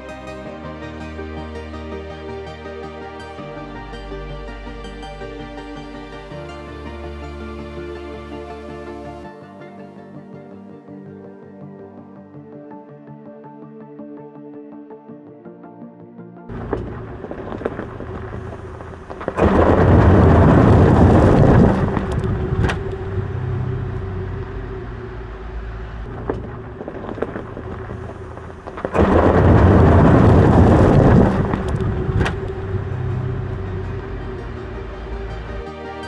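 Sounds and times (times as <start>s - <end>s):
steady hum: 16.5s - 36.0s.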